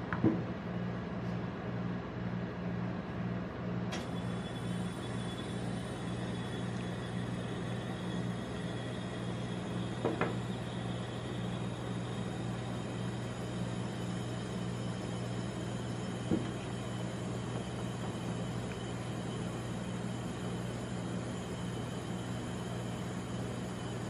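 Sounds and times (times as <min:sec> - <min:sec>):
refrigeration machine hum: 0:00.0 - 0:24.0.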